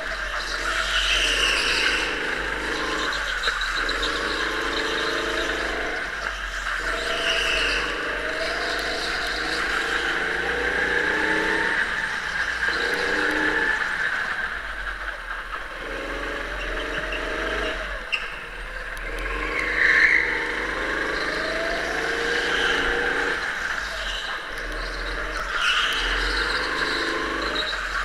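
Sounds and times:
tyres squealing: 0.0s - 14.7s, 19.2s - 28.0s
go-kart engine running: 0.0s - 28.0s.

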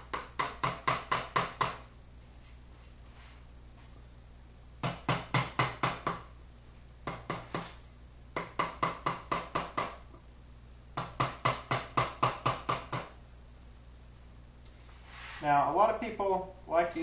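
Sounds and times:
mallet tapping chisel into wood: 0.0s - 1.8s, 4.8s - 6.3s, 8.4s - 10.0s, 11.0s - 13.1s.

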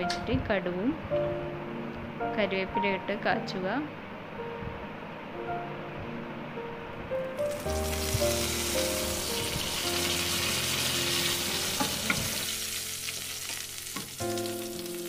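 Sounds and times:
soft background music: 0.0s - 15.0s
leaves sizzling in hot oil: 7.4s - 15.0s.

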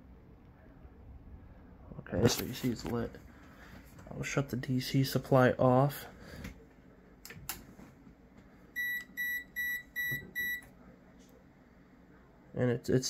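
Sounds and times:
power supply short high beeps: 8.8s - 10.7s.

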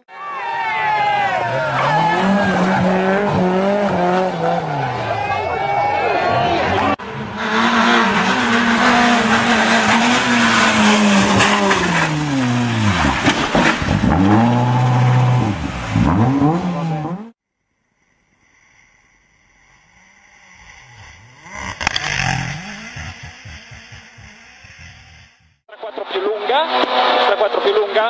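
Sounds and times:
rally car passing: 0.3s - 17.4s
rally car engine revving: 0.6s - 17.4s, 19.6s - 25.6s, 26.6s - 27.7s.

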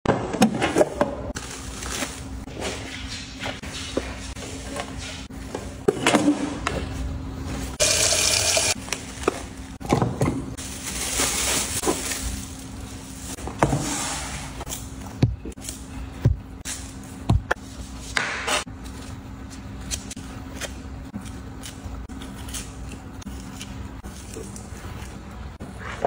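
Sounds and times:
paper and plastic bag crinkling: 10.6s - 13.4s.

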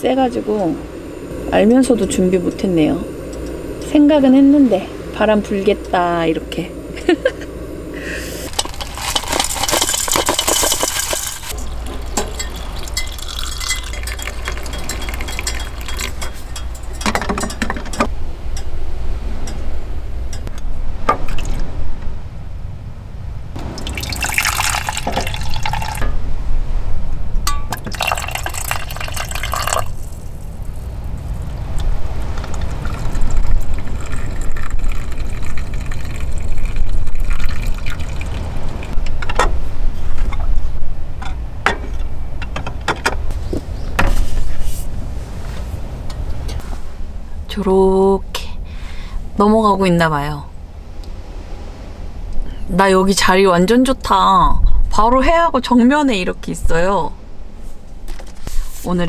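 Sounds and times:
tea pouring into metal mug: 8.5s - 16.9s, 23.8s - 26.0s, 27.8s - 30.2s, 32.4s - 38.8s
glass clinking: 8.5s - 18.7s, 23.8s - 26.2s, 27.5s - 30.0s.

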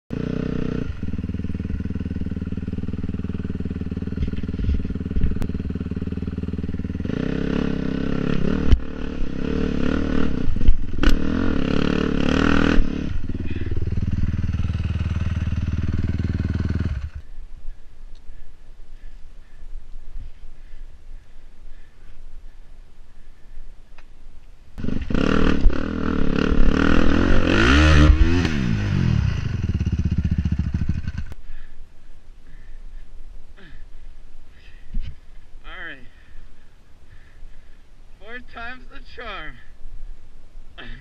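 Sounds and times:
dirt bike engine revving: 0.1s - 17.2s, 24.8s - 31.4s.

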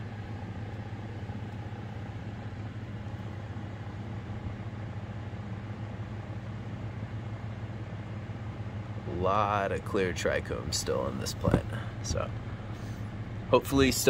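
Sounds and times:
ventilation fans humming: 0.0s - 14.0s.

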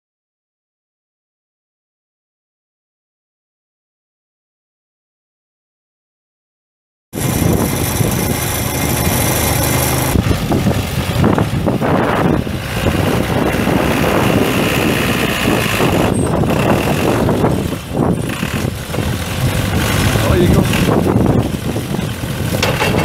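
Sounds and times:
diesel engine running steadily: 7.2s - 23.0s.

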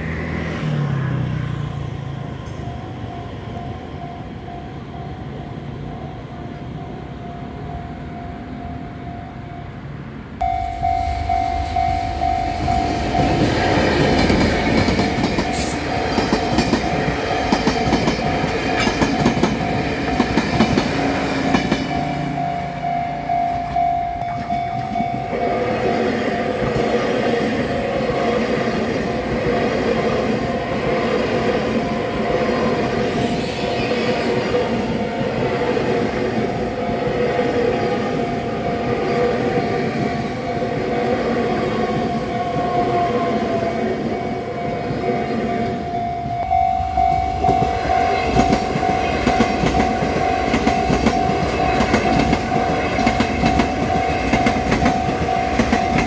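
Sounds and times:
crossing warning bell ringing: 1.5s - 56.0s
train wheels clattering on rails: 10.8s - 22.2s, 47.0s - 56.0s.

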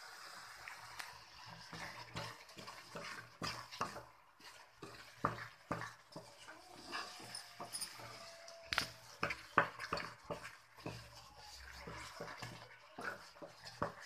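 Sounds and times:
spatula scraping thick paste in pan: 1.0s - 14.0s
spatula knocking against pan: 4.8s - 6.3s, 9.2s - 11.1s, 11.8s - 14.0s.

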